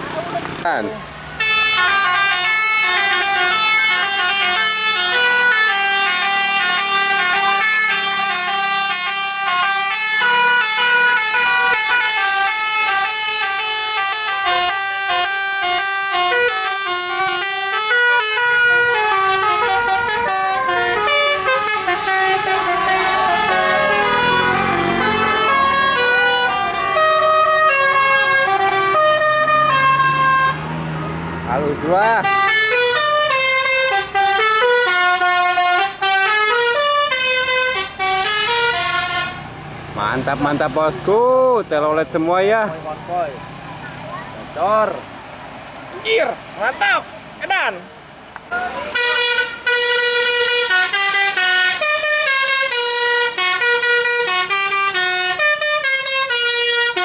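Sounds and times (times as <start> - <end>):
air horn playing fast tune: 1.4 - 30.6, 32.2 - 39.5, 48.9 - 57.0.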